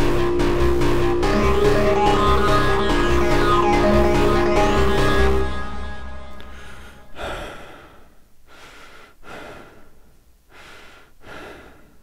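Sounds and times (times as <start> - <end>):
background music sustained notes: 0.0 - 7.7.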